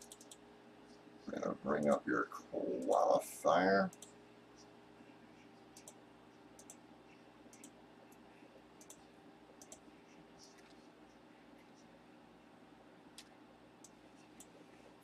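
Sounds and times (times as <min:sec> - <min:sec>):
mouse and keyboard clicks: 0:00.0 - 0:00.4, 0:08.8 - 0:09.0
low electrical hum: 0:00.0 - 0:15.0.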